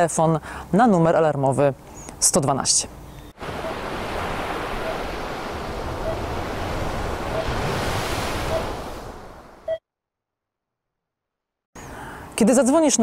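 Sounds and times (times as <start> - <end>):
stormy ocean waves: 3.4 - 9.7
wind rushing: 3.4 - 9.7.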